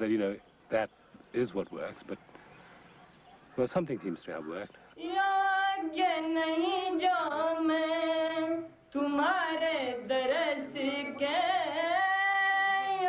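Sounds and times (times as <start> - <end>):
high voice singing devotional song: 5.0 - 13.0.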